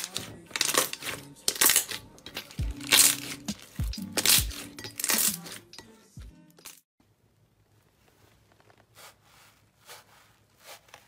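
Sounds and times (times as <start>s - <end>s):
slime squelching: 0.0s - 5.8s.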